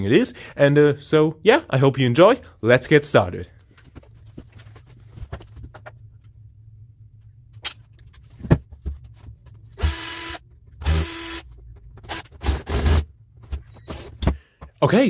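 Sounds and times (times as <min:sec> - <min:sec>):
electric screwdriver whirring: 0:09.8 - 0:13.1.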